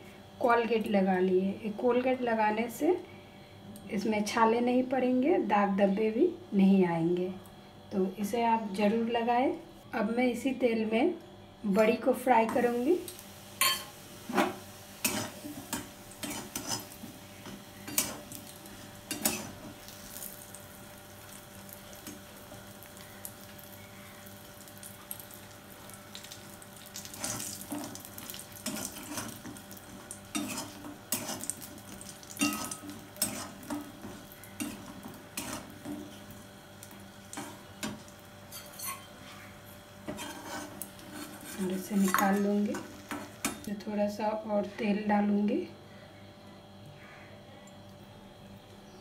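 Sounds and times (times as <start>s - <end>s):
light sizzle: 11.7s - 44.5s
metal spatula scraping a wok: 16.2s - 17.0s, 30.3s - 31.5s, 32.4s - 33.8s, 40.1s - 42.5s.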